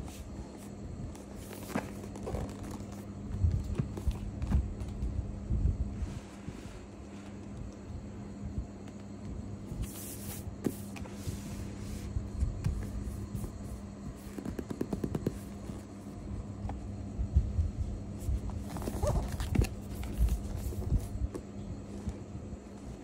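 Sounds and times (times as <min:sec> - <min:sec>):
steady low hum: 0:00.0 - 0:23.0
fingers handling cardboard box: 0:12.4 - 0:15.9.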